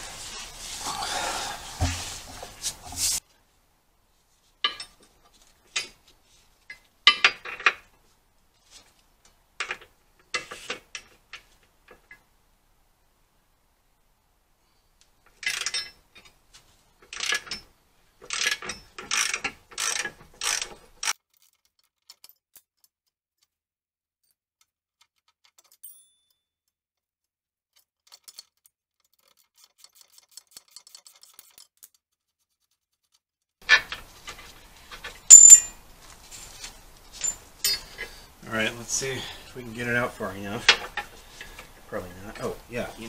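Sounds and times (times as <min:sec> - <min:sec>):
ratchet wrench clicking: 0:18.3 - 0:21.2
ringing metallic clink: 0:25.8 - 0:26.4, 0:35.3 - 0:35.8
metal clank: 0:35.0 - 0:35.8, 0:37.2 - 0:38.0.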